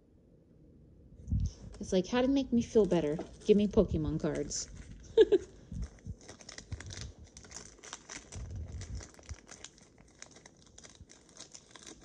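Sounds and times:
foil wrapper crinkling: 2.6 - 12.0.

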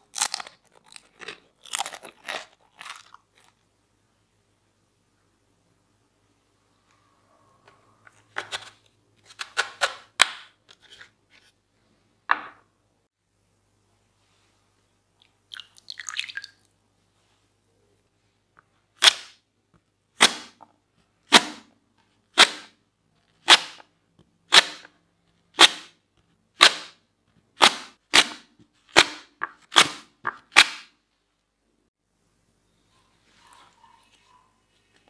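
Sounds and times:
water dripping and trickling: 15.2 - 16.7.

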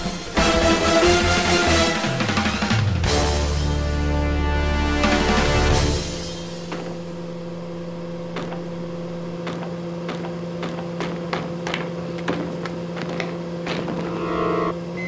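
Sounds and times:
electric hum: 3.1 - 15.0
clicks and knocks of hands fumbling: 9.4 - 14.1.

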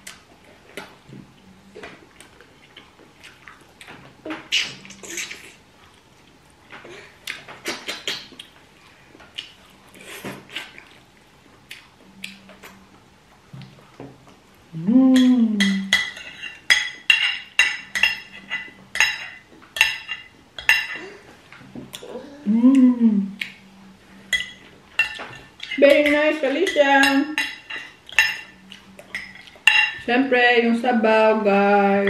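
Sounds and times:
person humming: 14.7 - 15.9, 22.0 - 23.4
cutlery clinking on dishes: 15.2 - 21.1, 24.3 - 30.1.

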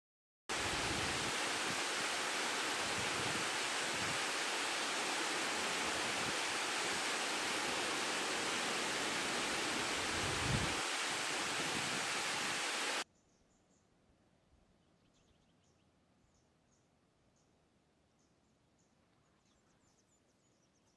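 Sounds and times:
waterfall splashing over rocks: 0.5 - 13.0.

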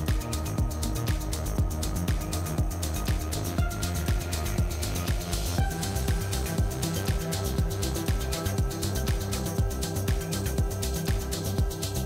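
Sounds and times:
electronic dance music: 0.0 - 12.0
kick drum beat: 0.0 - 12.0.

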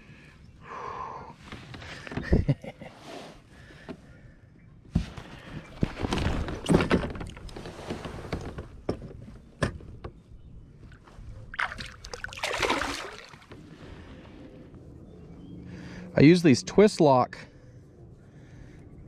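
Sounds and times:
water splashing: 10.9 - 13.6.

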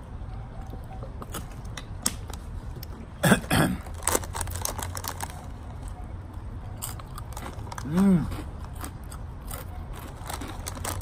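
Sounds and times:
foil snack bag crinkling: 3.8 - 5.6, 9.5 - 11.0.

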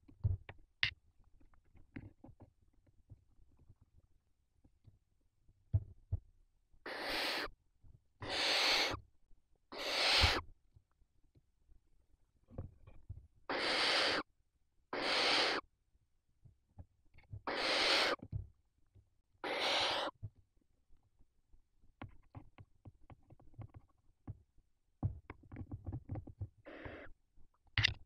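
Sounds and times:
barn owl chicks hissing calls: 6.8 - 7.5, 8.2 - 9.0, 9.7 - 10.4, 13.5 - 14.3, 14.9 - 15.6, 17.4 - 18.2, 19.4 - 20.2, 26.6 - 27.1.

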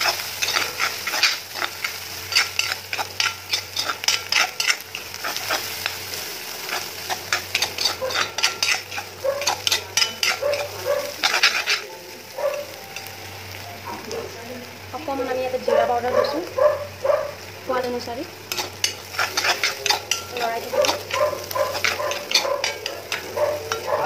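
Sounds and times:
ladle scraping metal pan: 0.0 - 5.7, 6.7 - 11.9, 18.5 - 24.0
onions frying sizzle: 0.0 - 24.0.

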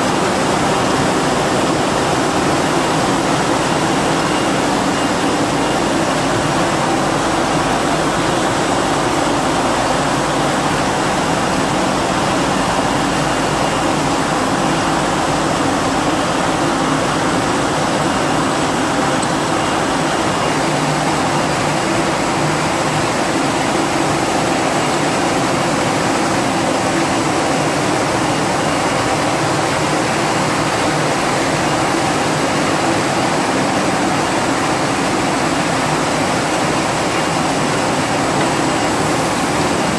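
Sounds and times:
production line machinery running: 0.0 - 39.9.

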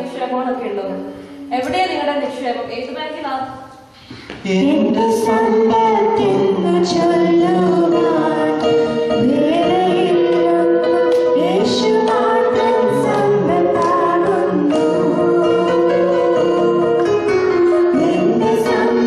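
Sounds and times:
voices singing into microphones: 4.1 - 19.0.

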